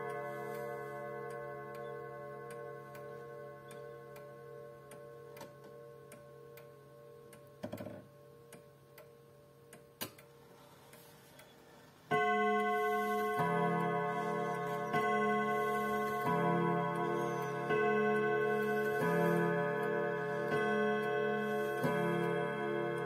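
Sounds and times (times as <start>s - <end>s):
clock striking: 0.0s - 7.6s, 12.1s - 23.0s
pendulum clock ticking: 0.0s - 23.0s
clock movement clicks: 9.7s - 23.0s.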